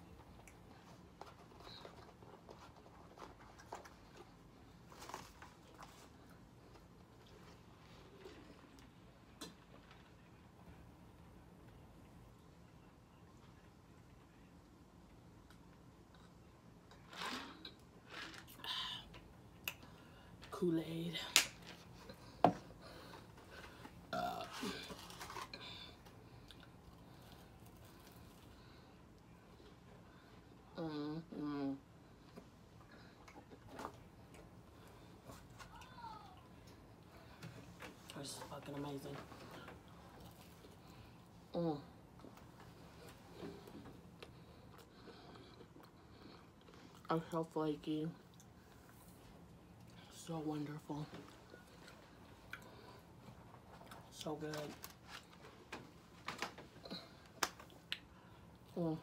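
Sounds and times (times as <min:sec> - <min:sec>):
person burping: 0:24.1 - 0:24.9.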